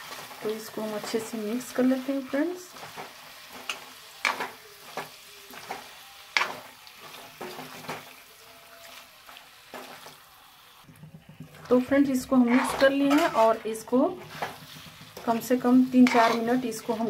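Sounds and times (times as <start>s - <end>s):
faint sizzle of frying: 0.0s - 17.0s
metal spatula scraping pan: 11.0s - 17.0s.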